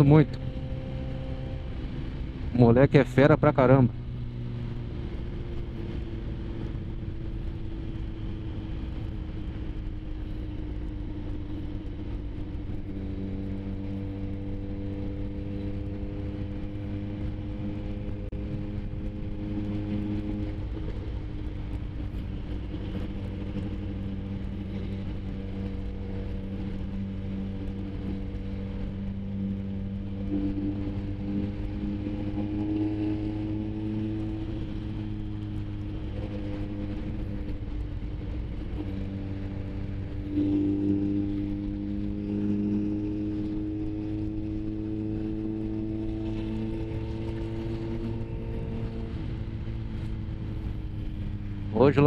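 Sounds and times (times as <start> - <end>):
motorcycle engine cruising: 0.0 - 52.0
wind noise: 0.0 - 52.0.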